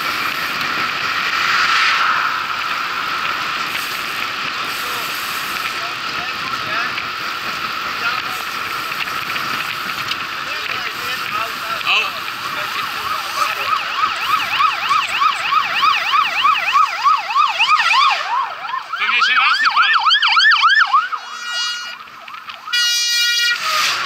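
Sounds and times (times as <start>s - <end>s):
emergency siren wailing: 10.6s - 24.0s
horn blasts: 21.2s - 22.1s, 22.7s - 24.0s.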